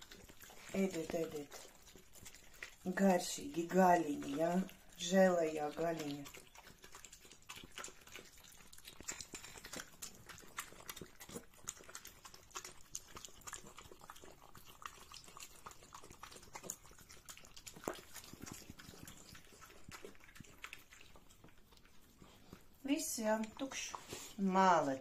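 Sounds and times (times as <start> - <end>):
dogs licking and chewing food: 0.0 - 25.0.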